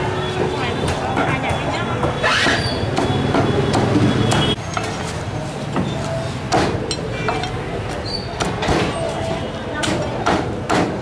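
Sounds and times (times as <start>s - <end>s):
steady background noise: 0.0s - 11.0s
meat cleaver chopping on wood: 9.8s - 11.0s.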